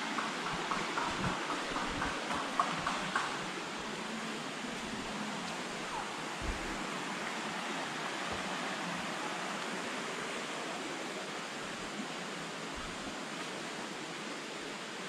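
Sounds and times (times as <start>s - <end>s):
stream running over stones: 0.0s - 15.0s
soft low thump: 6.4s - 6.9s.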